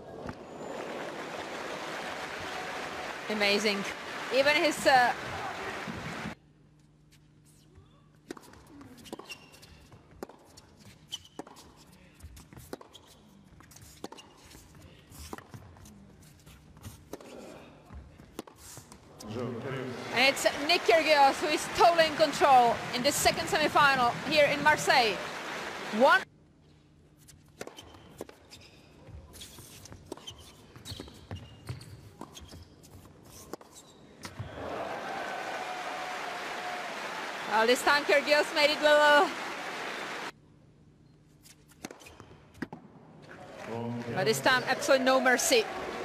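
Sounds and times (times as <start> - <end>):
shoes squeaking: 7.5 - 19.4, 27.2 - 34.5, 41.2 - 42.8
ball bouncing on court: 20.4 - 25.4, 29.9 - 32.6, 34.2 - 34.6
tennis ball off rackets: 41.4 - 42.9.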